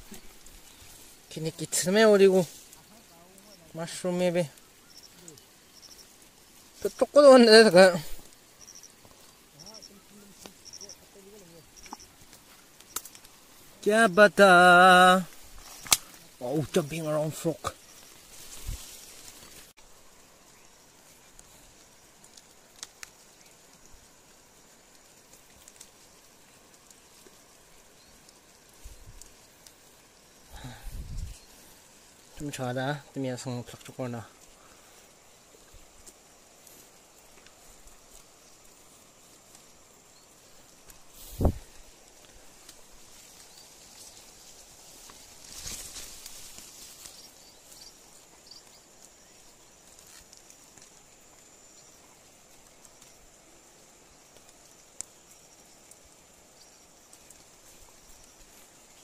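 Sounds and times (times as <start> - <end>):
hand picking mushrooms: 0.0 - 23.8
insect drone: 0.0 - 59.0
light ticks of handling: 8.0 - 13.8, 15.2 - 19.7, 20.9 - 32.5, 33.4 - 59.0.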